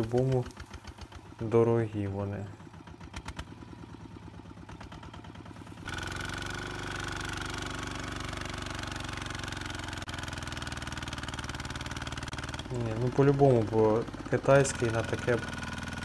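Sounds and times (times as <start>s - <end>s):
wheel digging into dry soil: 0.0s - 1.2s, 5.5s - 8.8s
diesel tractor engine running: 0.0s - 16.0s.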